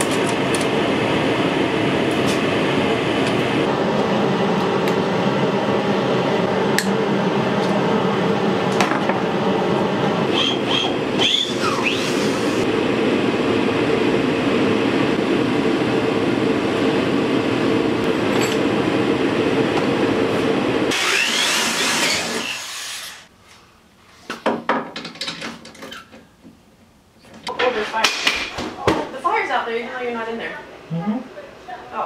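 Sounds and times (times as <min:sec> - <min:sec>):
electric drill boring: 0:11.2 - 0:12.6, 0:20.9 - 0:23.3.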